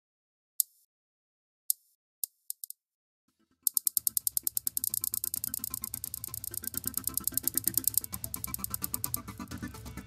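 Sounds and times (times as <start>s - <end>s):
sharp mechanical clicks: 3.7s - 9.4s
low drone: 4.8s - 10.0s.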